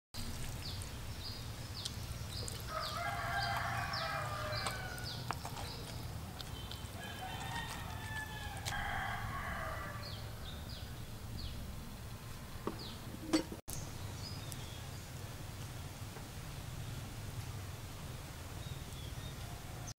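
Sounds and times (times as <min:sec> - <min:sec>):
rooster crowing: 0:02.7 - 0:05.4, 0:06.9 - 0:10.9.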